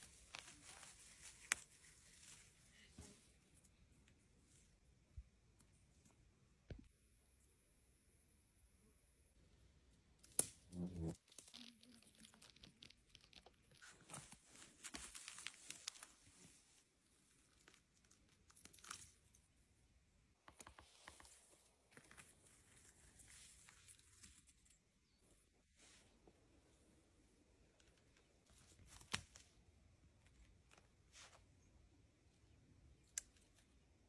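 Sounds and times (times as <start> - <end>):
rustling of forest litter: 0.0 - 3.4, 13.7 - 17.8, 21.2 - 26.2.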